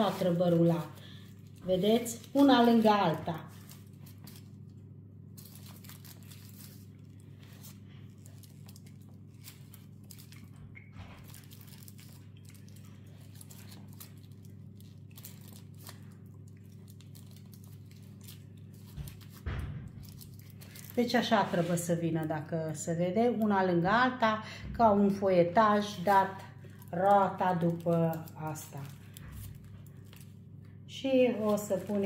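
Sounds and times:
aluminium foil crinkling: 0.0s - 22.4s, 25.8s - 32.0s
steady low hum: 0.0s - 32.0s
soft handling noises: 26.6s - 32.0s.

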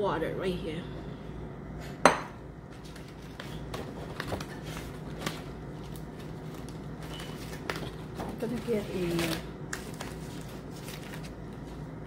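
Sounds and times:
ceramic bowl knocking on counter: 2.0s - 2.4s
rice paper crinkling: 2.8s - 12.0s.

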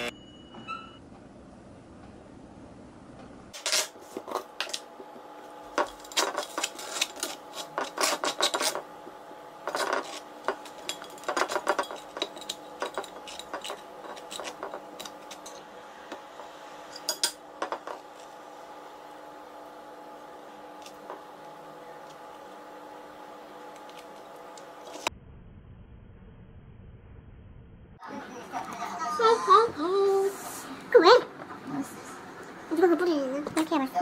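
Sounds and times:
faint hum: 0.0s - 34.0s
knife scraping toast: 5.8s - 8.8s.

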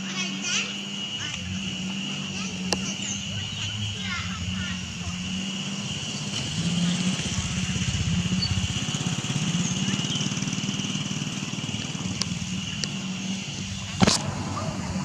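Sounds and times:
small engine idling: 0.0s - 15.0s
sharp click: 14.0s - 14.3s.

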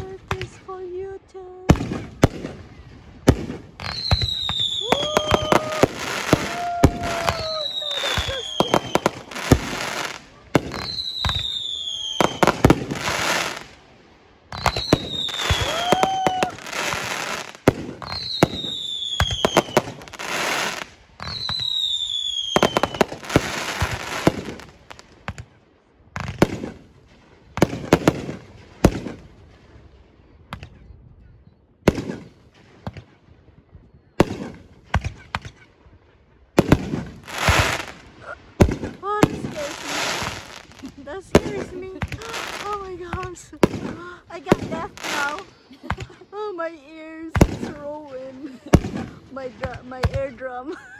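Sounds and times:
fireworks bangs and crackling: 0.0s - 31.0s, 31.8s - 50.9s
fireworks whistles falling in pitch: 3.8s - 13.6s, 14.5s - 25.0s.

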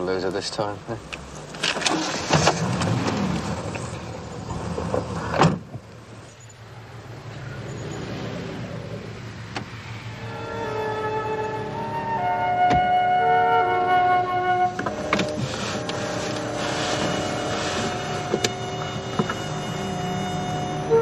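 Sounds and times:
street traffic: 0.0s - 21.0s
music: 10.3s - 21.0s
car door slamming: 12.6s - 13.0s, 17.2s - 19.6s.

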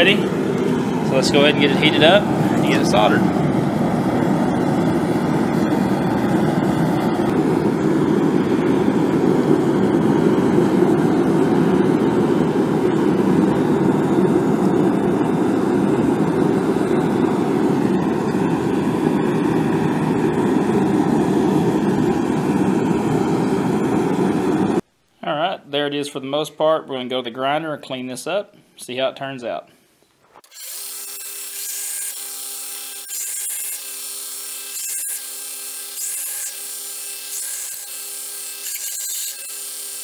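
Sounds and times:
forge roaring: 0.0s - 24.8s.

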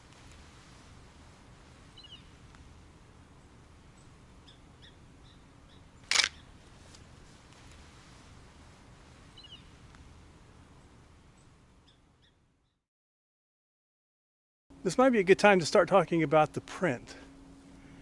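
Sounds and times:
faint outdoor background: 0.0s - 12.8s, 14.7s - 18.0s
camera shutter click: 6.1s - 6.5s.

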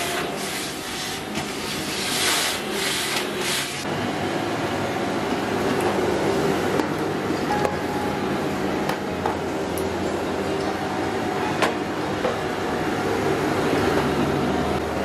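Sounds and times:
vacuum cleaner running: 0.0s - 9.6s, 10.4s - 15.0s.

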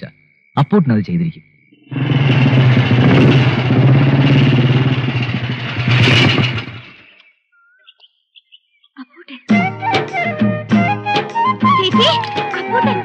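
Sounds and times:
motorcycle engine running: 1.9s - 7.2s
music: 9.4s - 13.0s.

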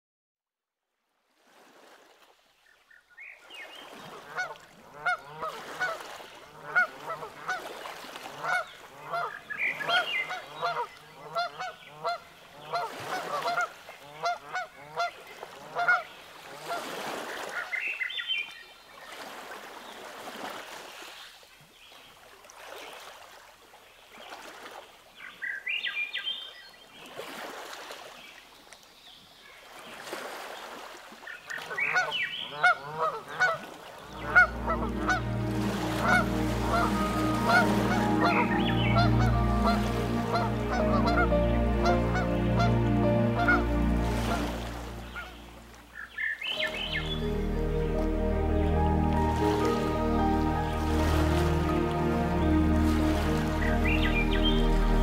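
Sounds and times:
geese honking: 6.6s - 7.6s, 8.4s - 9.3s, 9.9s - 15.1s, 15.7s - 16.0s, 31.9s - 55.0s.

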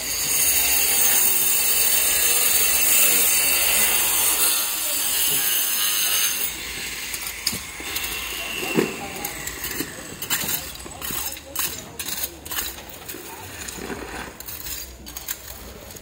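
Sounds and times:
angle grinder cutting tile: 0.0s - 16.0s.

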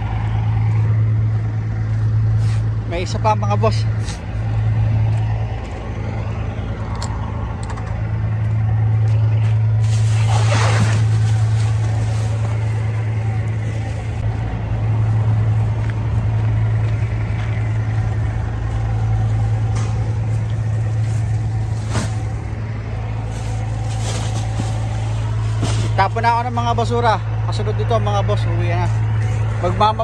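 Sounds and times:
machinery humming: 0.0s - 30.0s
garbage bag rustling: 9.8s - 14.2s, 23.2s - 26.2s.

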